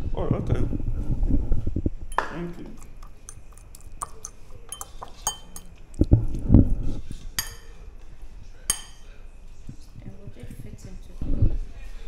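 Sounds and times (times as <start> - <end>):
cutlery clinking on ceramic plates: 2.1 - 6.0, 7.3 - 7.8, 8.7 - 9.2.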